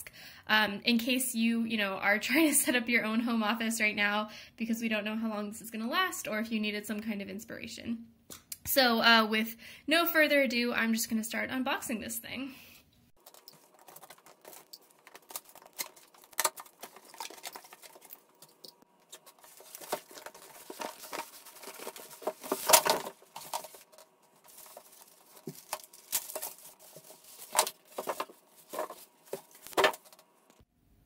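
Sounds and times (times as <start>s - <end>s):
styrofoam and plastic wrap rustling: 13.2s - 30.3s
cardboard box opening: 19.1s - 30.2s.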